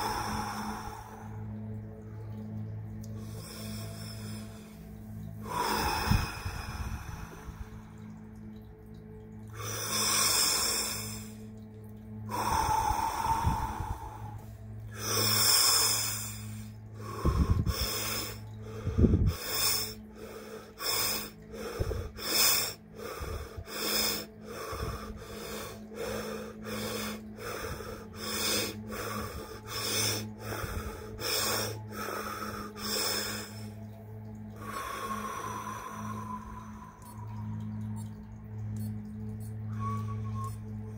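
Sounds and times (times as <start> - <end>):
man breathing forcefully through mouth: 0.0 - 1.7, 3.2 - 8.1, 12.3 - 37.7.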